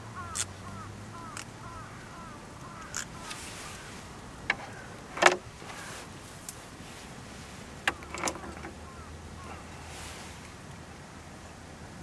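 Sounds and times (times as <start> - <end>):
wood crackling in fire: 2.5 - 7.8.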